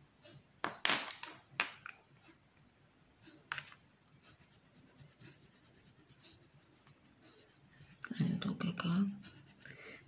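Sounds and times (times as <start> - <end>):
pencil scratching on paper: 3.9 - 8.0, 9.0 - 9.8.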